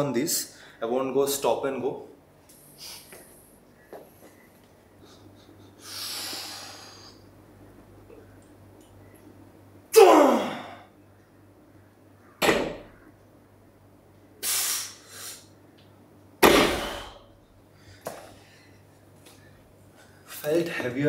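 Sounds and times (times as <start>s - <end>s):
barbell thudding on gym floor: 12.4s - 13.0s, 16.4s - 17.2s
sharp forceful breaths: 14.4s - 15.5s.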